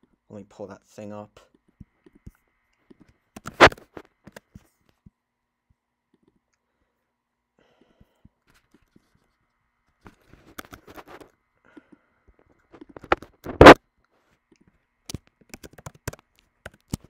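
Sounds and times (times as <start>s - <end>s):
mouse and keyboard clicks: 1.8s - 5.0s, 10.4s - 11.3s, 15.1s - 17.0s.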